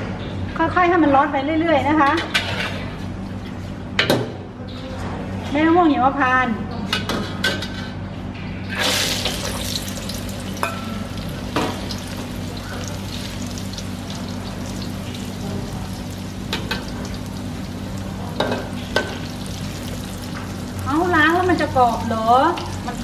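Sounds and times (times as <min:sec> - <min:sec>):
nuts sizzling in hot oil: 0:08.8 - 0:23.0.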